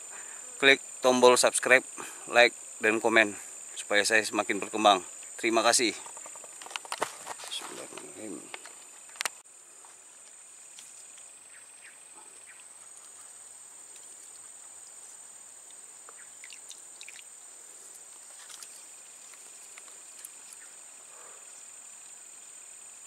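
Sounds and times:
high-pitched insect trilling: 0.0s - 23.0s.

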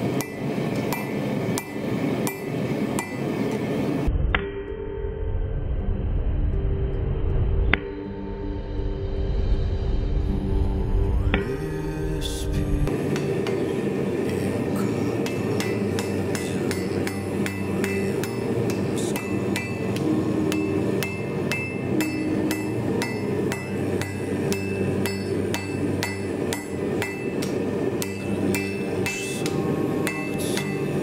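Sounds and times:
hammer striking steel on anvil: 0.0s - 3.7s, 12.9s - 31.0s.

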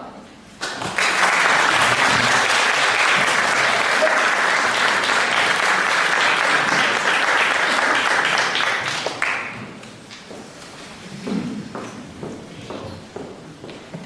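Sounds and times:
audience applauding: 0.6s - 9.6s.

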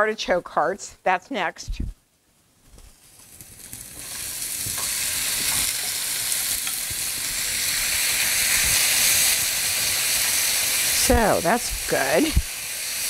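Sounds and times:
vegetables sizzling in a skillet: 3.0s - 13.0s.

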